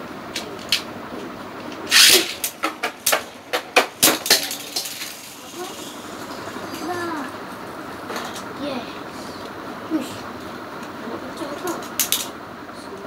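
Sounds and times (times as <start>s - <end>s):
spinning tops clacking together: 1.7s - 5.9s, 11.6s - 12.3s
spinning top launcher zip: 1.9s - 2.4s.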